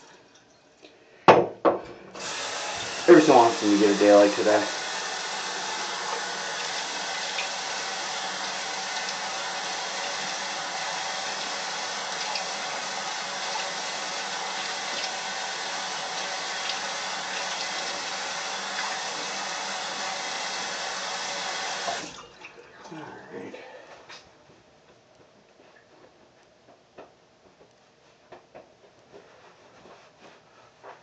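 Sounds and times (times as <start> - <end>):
water running from a tap: 2.2 - 22.6.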